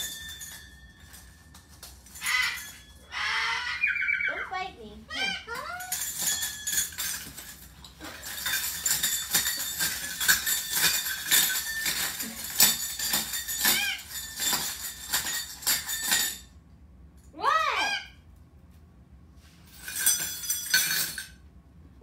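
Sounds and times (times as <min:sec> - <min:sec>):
metal bells jangling: 0:00.0 - 0:03.4, 0:05.5 - 0:16.6, 0:19.6 - 0:21.4
cockatoo call: 0:02.2 - 0:04.5.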